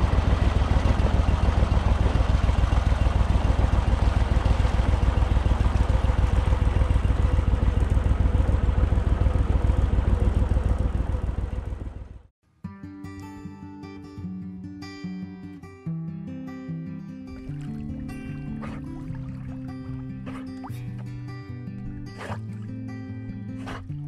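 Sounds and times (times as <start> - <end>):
boat motor running: 0.0 - 12.3, 17.3 - 23.9.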